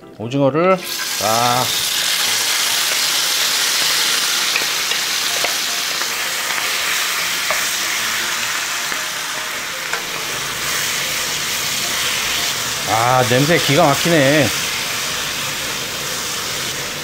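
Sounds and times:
food sizzling in hot oil: 0.8s - 17.0s.

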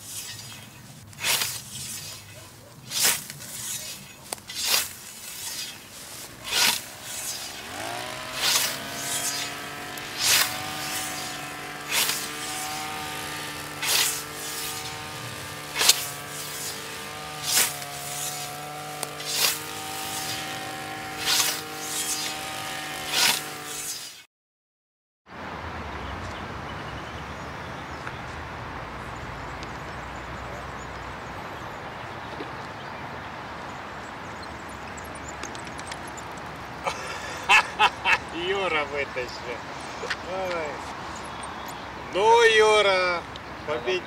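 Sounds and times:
scythe swishing through dry grass: 0.0s - 24.2s
brush cutter motor running: 2.9s - 24.2s.

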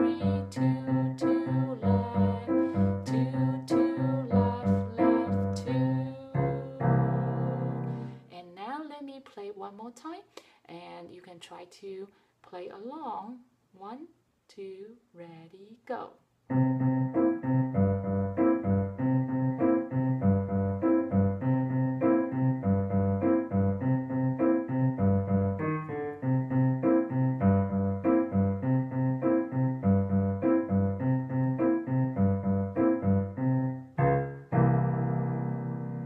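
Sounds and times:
digital piano playing: 0.0s - 8.2s, 16.5s - 36.0s.

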